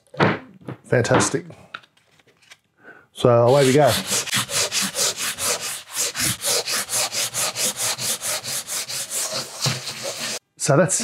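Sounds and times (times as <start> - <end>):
sandpaper scratching on filler: 3.5 - 10.4.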